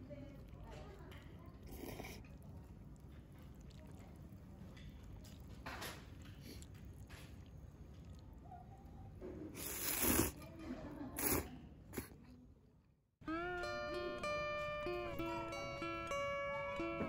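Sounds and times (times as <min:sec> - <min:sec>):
noodles being slurped: 0:00.1 - 0:10.4, 0:11.1 - 0:12.2.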